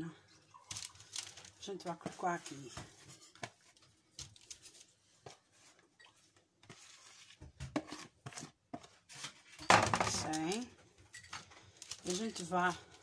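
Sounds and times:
paper rustling: 0.6s - 5.8s, 11.5s - 13.0s.

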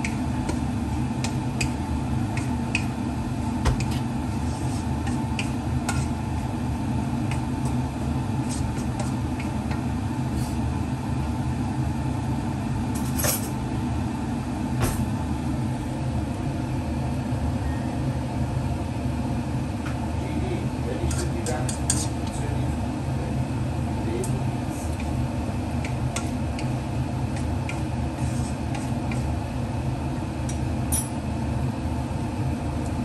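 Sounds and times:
steady low hum: 0.0s - 33.0s
spatula scraping pan: 3.8s - 6.2s, 8.4s - 9.3s, 21.1s - 22.2s, 28.1s - 29.3s.

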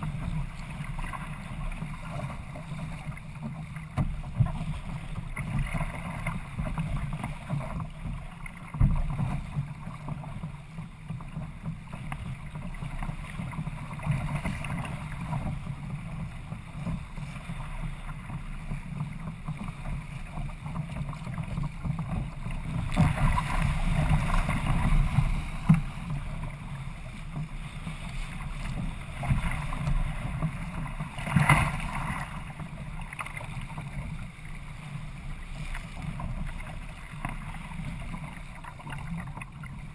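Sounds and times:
water rushing along hull: 0.0s - 39.9s.

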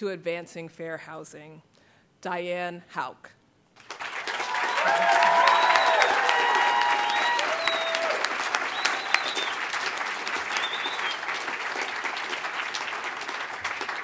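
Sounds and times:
audience applauding: 3.8s - 14.0s.

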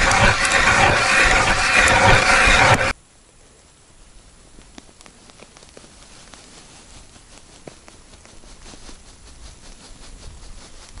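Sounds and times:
faint clicks and crackles: 0.0s - 2.9s, 4.5s - 8.9s
wind rumbling on microphone: 6.8s - 11.0s.

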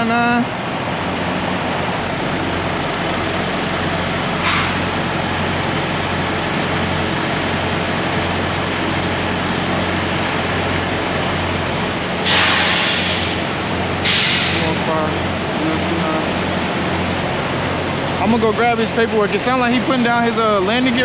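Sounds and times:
diesel truck engine idling: 0.0s - 21.0s
air hiss: 4.4s - 5.3s, 12.2s - 15.0s.

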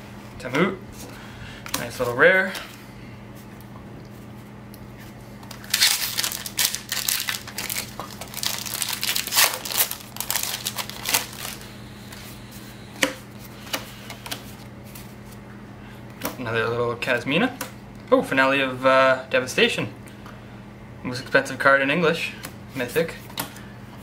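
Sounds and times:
foil wrapper crinkling and tearing: 5.4s - 11.7s.

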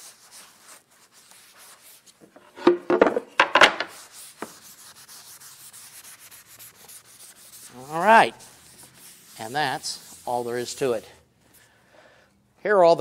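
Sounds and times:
paper towels rubbing on wood: 0.0s - 2.2s, 3.9s - 11.3s.

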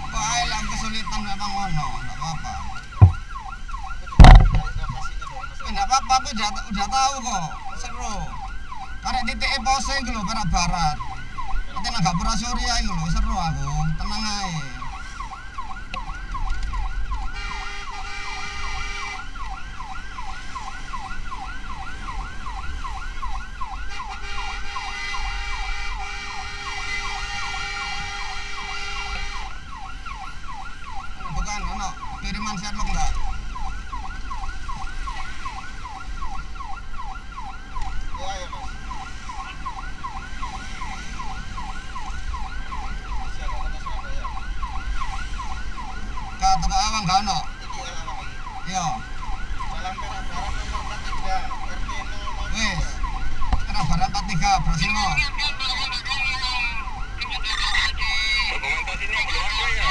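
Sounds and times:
low vehicle rumble: 0.0s - 5.8s
emergency siren in fast yelp: 0.0s - 59.9s
steady siren tone: 0.0s - 59.9s.

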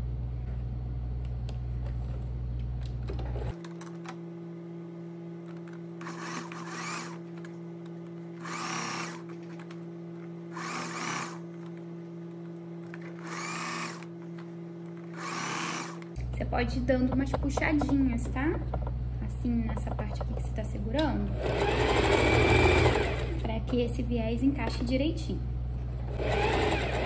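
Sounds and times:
sewing machine motor hum: 5.5s - 16.2s, 20.9s - 23.8s, 25.9s - 27.0s.

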